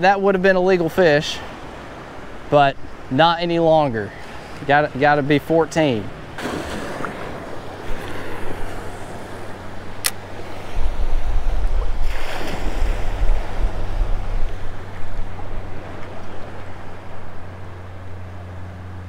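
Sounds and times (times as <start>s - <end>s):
shallow surf washing: 0.0s - 19.0s
wind gusting on microphone: 1.4s - 19.0s
water sloshing: 6.0s - 19.0s.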